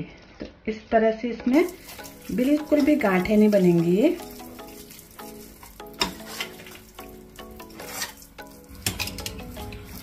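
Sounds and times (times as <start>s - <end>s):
spatula scraping a metal pot: 1.7s - 6.8s, 7.6s - 10.0s.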